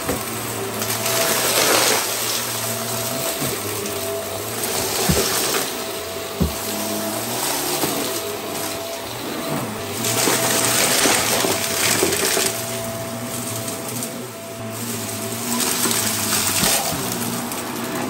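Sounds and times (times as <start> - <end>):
vacuum cleaner running on carpet: 0.0 - 18.0.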